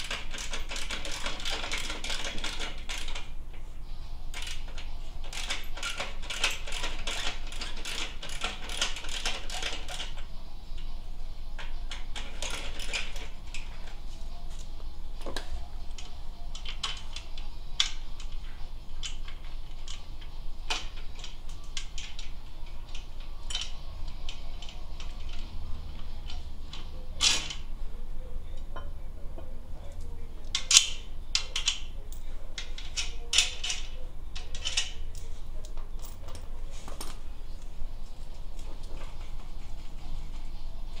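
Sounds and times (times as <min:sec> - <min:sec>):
ratchet wrench clicking: 0:00.0 - 0:03.3, 0:04.3 - 0:10.9, 0:15.9 - 0:27.6
metal tools clinking and knocking: 0:30.5 - 0:37.2.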